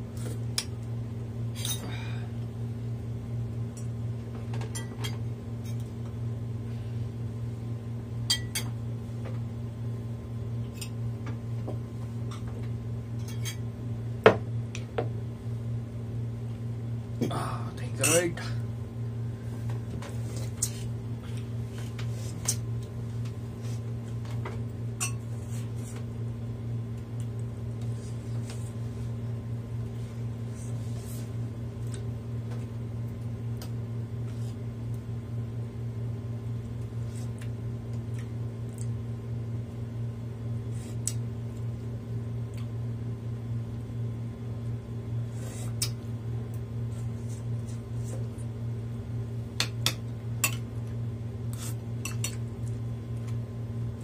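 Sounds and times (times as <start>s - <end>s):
steady low hum: 0.0s - 54.0s
spoons clinking against bowls: 8.3s - 8.7s, 25.0s - 25.2s.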